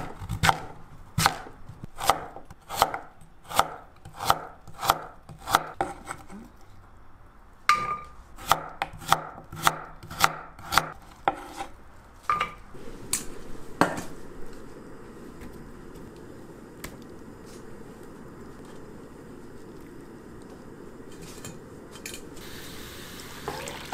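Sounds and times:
knife chopping on wooden board: 0:00.0 - 0:06.1, 0:08.4 - 0:11.7.

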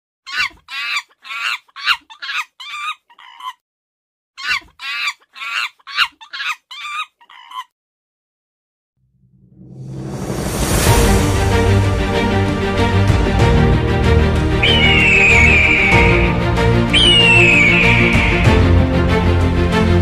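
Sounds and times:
shrill wavering animal calls: 0:00.3 - 0:03.6, 0:14.6 - 0:18.8.

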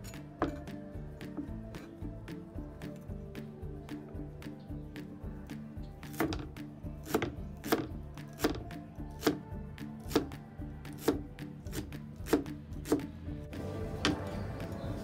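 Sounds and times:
soft background music: 0:00.0 - 0:15.0
cleaver chopping on cutting board: 0:06.1 - 0:09.4, 0:11.0 - 0:13.1.

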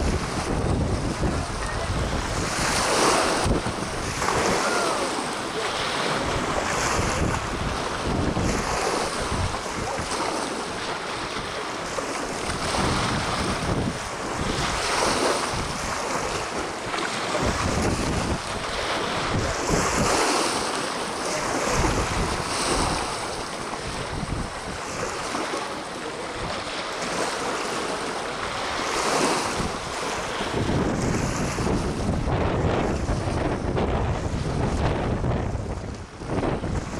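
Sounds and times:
wind gusting on microphone: 0:00.0 - 0:25.6, 0:26.3 - 0:36.9
water lapping against boat hulls: 0:00.0 - 0:36.9.

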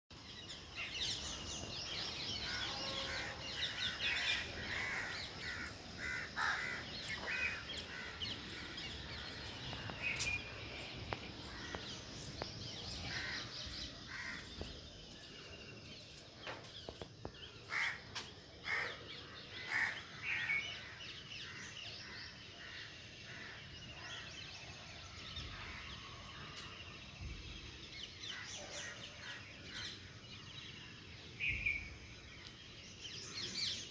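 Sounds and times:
birds calling and chirping: 0:00.1 - 0:33.9
harsh bird calls: 0:00.6 - 0:15.6.

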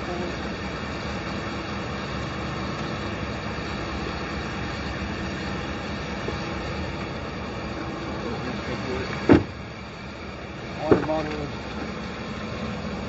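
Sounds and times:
highway traffic road noise: 0:00.0 - 0:13.0.

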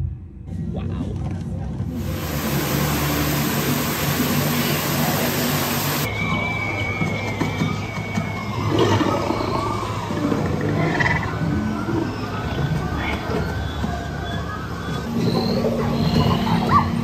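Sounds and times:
rushing waterfall: 0:01.9 - 0:06.1
jungle animal sounds: 0:08.6 - 0:17.0.

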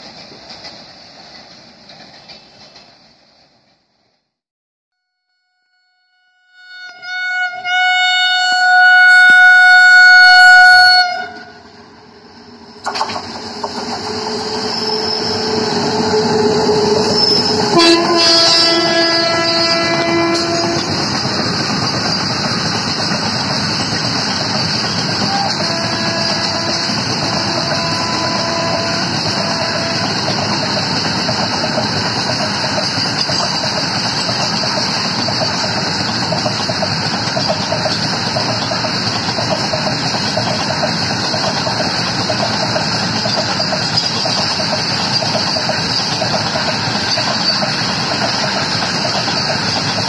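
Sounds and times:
freight train rumbling past: 0:00.0 - 0:04.2, 0:07.6 - 0:50.0
locomotive horn blast: 0:05.3 - 0:11.6, 0:14.4 - 0:21.0, 0:25.3 - 0:30.4.

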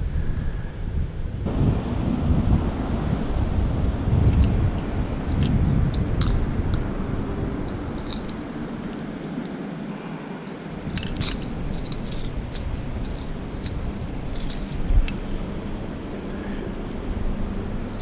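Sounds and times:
metal pliers clicking on hooks: 0:04.3 - 0:06.8, 0:07.6 - 0:09.6, 0:10.9 - 0:15.3.

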